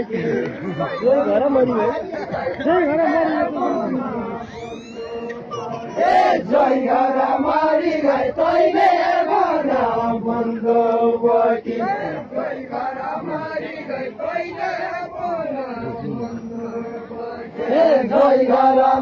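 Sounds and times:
men chanting in unison: 5.4 - 19.0.

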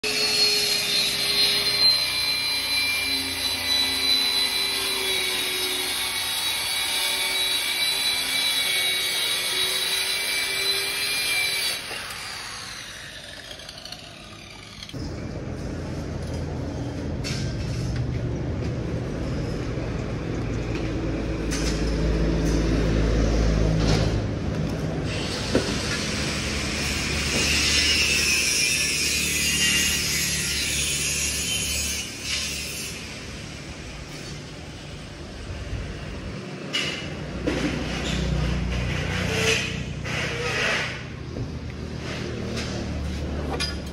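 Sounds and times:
circular saw cutting plywood: 0.0 - 15.0, 25.0 - 33.4, 37.5 - 41.2.

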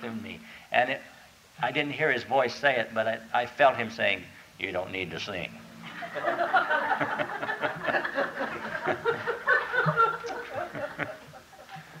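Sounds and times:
audience laughing: 5.8 - 12.0.

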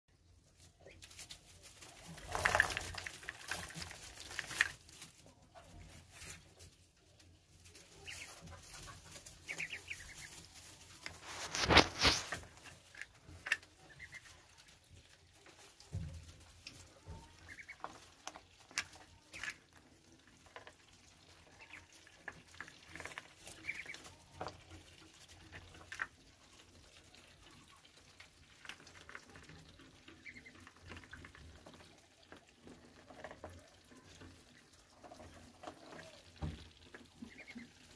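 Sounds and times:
ducks pecking and rustling: 0.1 - 37.9
ducklings peeping: 0.7 - 37.9
loud rustle: 7.7 - 12.8.

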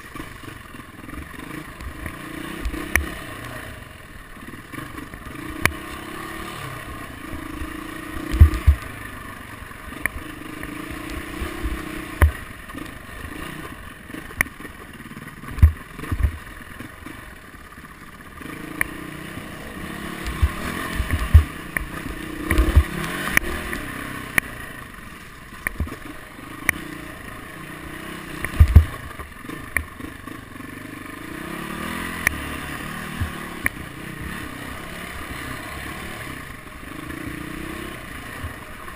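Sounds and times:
dirt bike engine revving: 0.0 - 38.9
bike knocking over bumps: 8.4 - 8.9, 20.3 - 21.6, 28.5 - 29.2.

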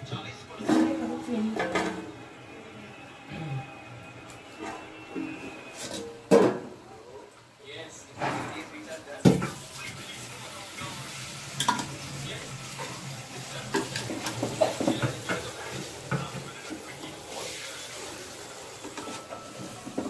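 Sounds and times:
chicken sizzling in a pot: 9.0 - 20.0.

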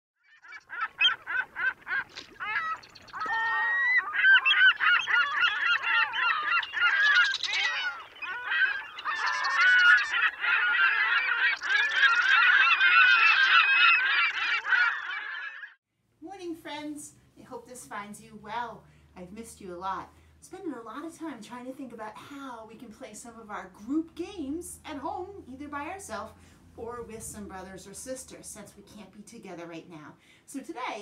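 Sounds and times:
flock of birds calling: 0.3 - 15.8.

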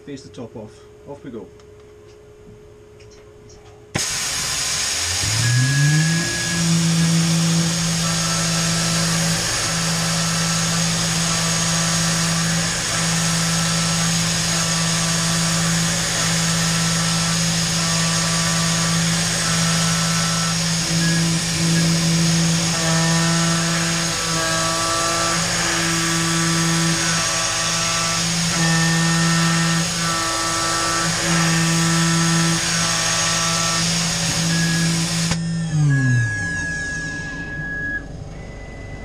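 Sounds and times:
coolant spray hissing: 4.0 - 5.6
milling spindle motor whine: 4.0 - 39.0
short higher tones: 34.5 - 39.0.

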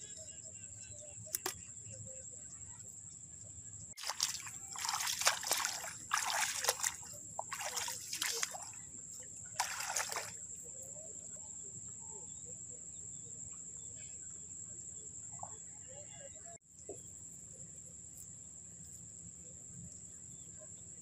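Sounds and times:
hands splashing through water: 4.0 - 8.8, 9.6 - 10.4.

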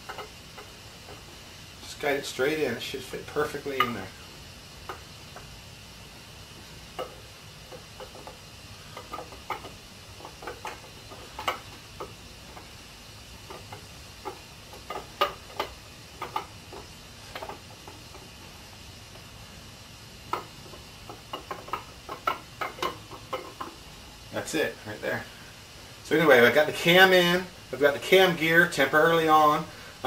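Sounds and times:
metal clicking and tapping: 0.0 - 1.3, 3.6 - 4.1, 4.8 - 5.5, 6.9 - 12.8, 13.4 - 18.5, 20.3 - 23.8
faint steady hiss: 0.0 - 30.0.

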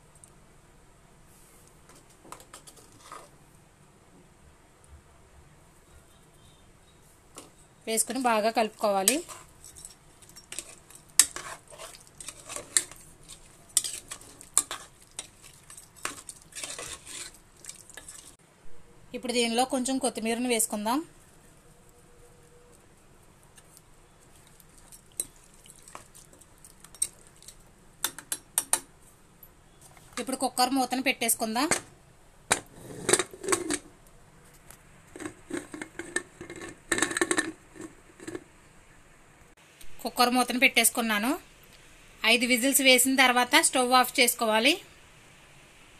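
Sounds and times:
spoon stirring wet curry: 7.4 - 18.4, 22.7 - 28.9.

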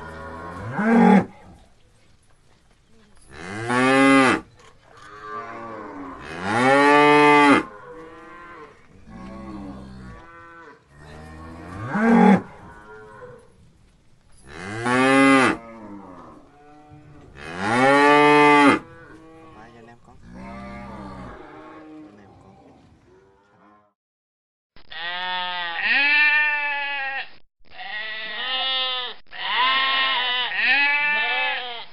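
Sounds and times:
cow mooing loudly: 5.1 - 12.9, 17.4 - 19.7, 20.3 - 22.3
quieter cattle moos: 14.4 - 23.9.

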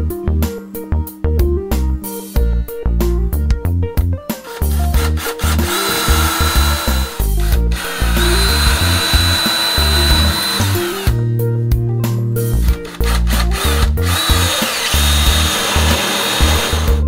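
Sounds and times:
background music with bass: 0.0 - 17.0
cordless drill boring into wood: 4.5 - 11.2, 12.7 - 17.0.

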